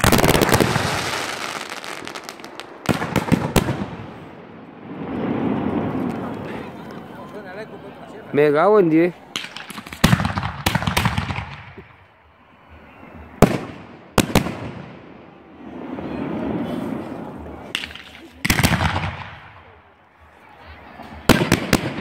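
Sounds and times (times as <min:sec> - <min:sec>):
rumbling echo: 0:02.6 - 0:06.9
firework shells bursting: 0:09.3 - 0:11.9, 0:17.7 - 0:19.4.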